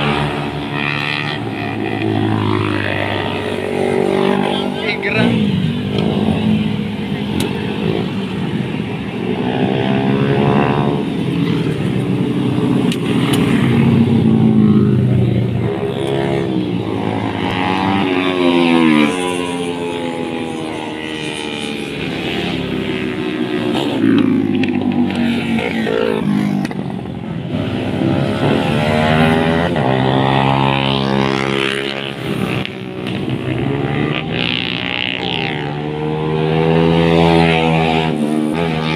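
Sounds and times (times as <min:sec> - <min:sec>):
motorcycles riding past: 0:00.0 - 0:38.9.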